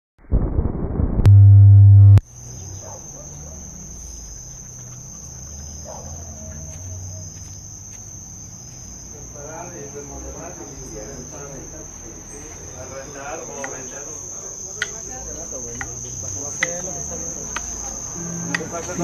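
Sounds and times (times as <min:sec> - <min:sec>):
loud held buzzing tone: 0:00.3 - 0:02.3
crickets trilling: 0:02.2 - 0:19.0.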